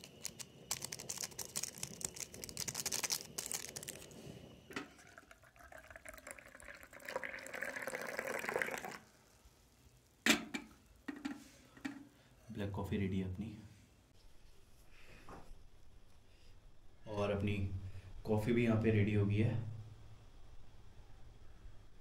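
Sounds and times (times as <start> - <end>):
crackly rustling: 0.0 - 5.1
hot water pouring into mug: 0.0 - 9.4.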